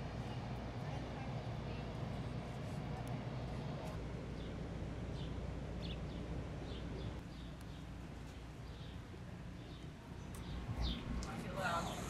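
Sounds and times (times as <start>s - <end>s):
steady low hum: 0.0s - 12.0s
small birds chirping: 4.3s - 12.0s.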